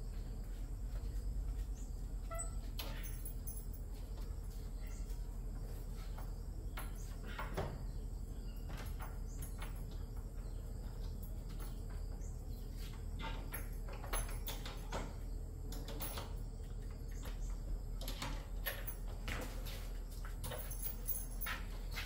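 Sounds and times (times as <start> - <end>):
wooden door rattling at latch: 13.2 - 19.4.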